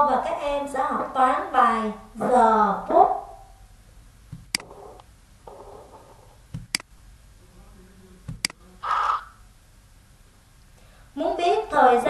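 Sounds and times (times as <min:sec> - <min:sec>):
faint room noise: 0:00.0 - 0:12.0
computer mouse clicking: 0:04.4 - 0:05.1.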